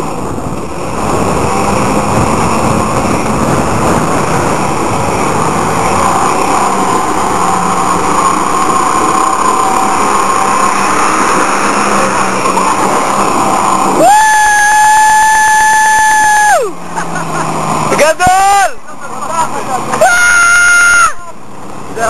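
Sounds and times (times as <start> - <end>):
jeep engine running: 0.0 - 22.0.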